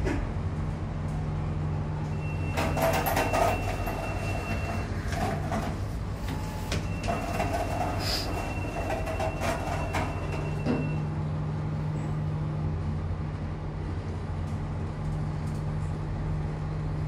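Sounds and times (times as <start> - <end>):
lift humming: 0.0 - 17.0
lift doors rattling: 2.1 - 11.1.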